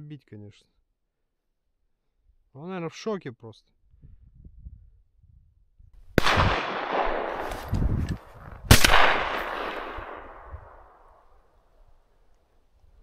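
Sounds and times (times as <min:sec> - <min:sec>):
shotgun shots with echo: 0:06.2 - 0:07.7, 0:08.7 - 0:11.0.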